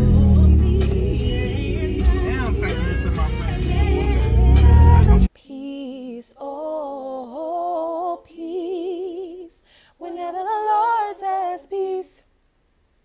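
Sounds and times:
woman singing a cappella: 0:00.0 - 0:12.4
singer breathing: 0:09.6 - 0:10.0.

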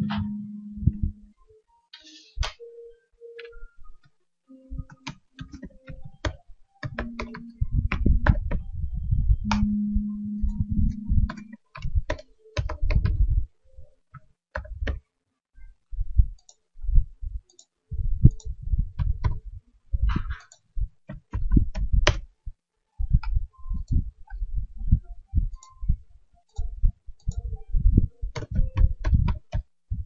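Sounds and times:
keyboard keys clicking: 0:04.7 - 0:08.7, 0:09.4 - 0:13.2, 0:26.4 - 0:29.7
mouse buttons clicking: 0:04.8 - 0:08.6, 0:09.4 - 0:13.2, 0:28.3 - 0:29.7.

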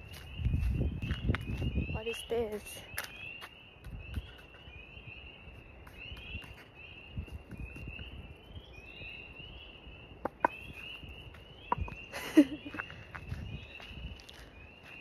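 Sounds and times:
soft footsteps: 0:00.0 - 0:01.7, 0:05.5 - 0:08.1, 0:10.3 - 0:15.0.

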